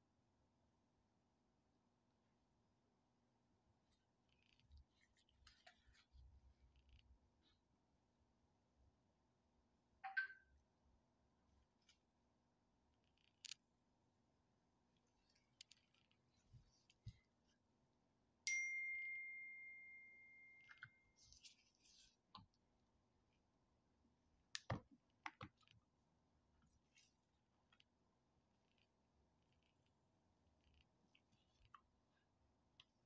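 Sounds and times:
clear ringing ding: 18.5s - 21.0s.

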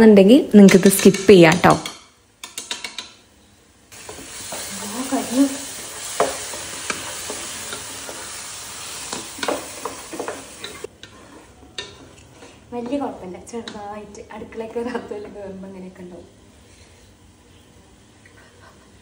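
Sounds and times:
food sizzling in a pan: 3.9s - 12.7s
spoon scraping a pan: 4.0s - 13.0s.

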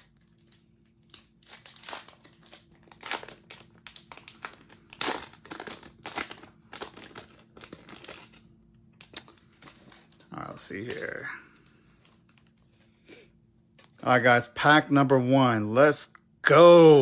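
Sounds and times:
foil wrapper tearing: 0.0s - 11.2s
foil wrapper crinkling: 0.0s - 12.6s.

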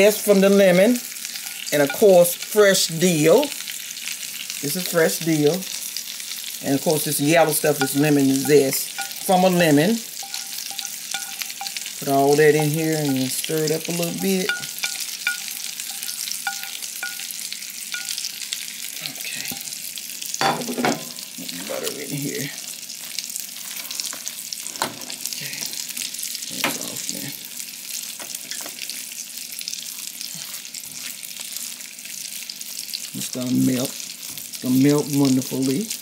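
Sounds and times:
food sizzling in a hot pan: 0.0s - 36.0s
spoon stirring and scraping a pot: 0.7s - 2.5s, 6.9s - 19.8s, 22.9s - 25.2s, 29.7s - 31.8s.

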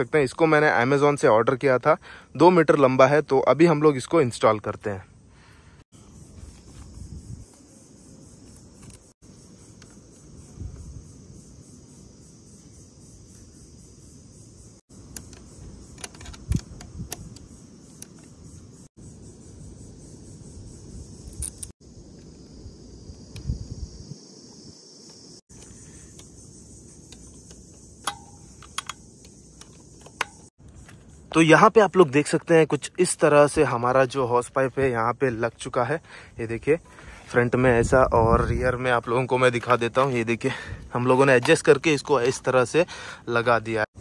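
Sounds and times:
crickets chirring: 0.0s - 44.0s
insects buzzing: 0.0s - 44.0s
clicks of metal hose fitting: 15.1s - 18.3s, 27.1s - 30.5s, 41.2s - 42.5s.

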